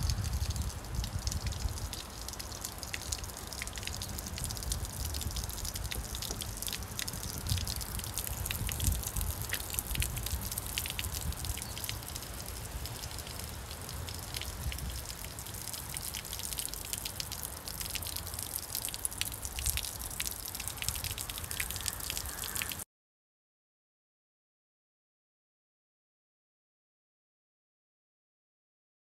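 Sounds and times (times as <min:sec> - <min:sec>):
water overflowing and dripping: 0:00.0 - 0:22.8.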